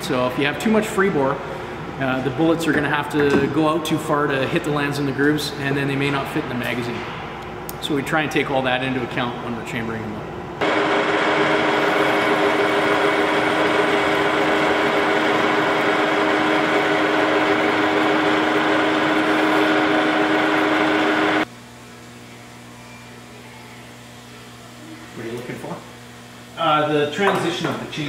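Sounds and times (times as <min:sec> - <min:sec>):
metal lathe whining: 0:10.6 - 0:21.5.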